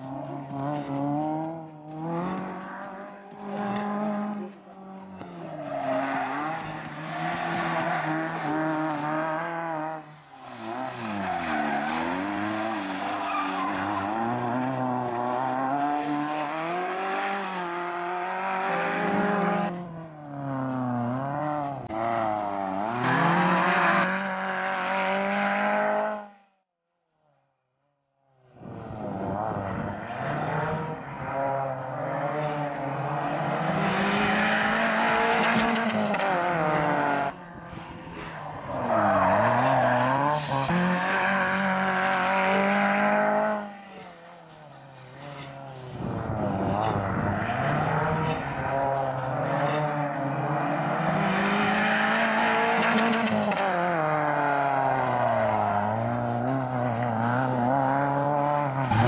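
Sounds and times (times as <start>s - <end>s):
tyres skidding on concrete: 0.0s - 25.8s, 28.8s - 59.0s
car engine revving: 0.0s - 26.5s, 28.6s - 59.0s.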